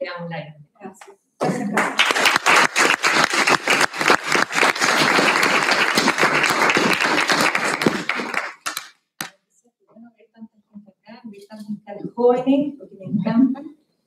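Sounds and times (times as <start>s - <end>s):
small audience applauding: 1.4s - 9.3s.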